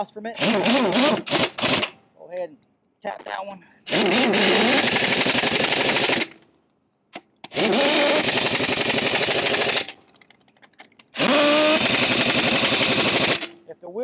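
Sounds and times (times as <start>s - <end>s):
pneumatic impact wrench hammering: 0.4s - 2.0s, 3.9s - 6.4s, 7.2s - 10.0s, 10.8s - 13.6s.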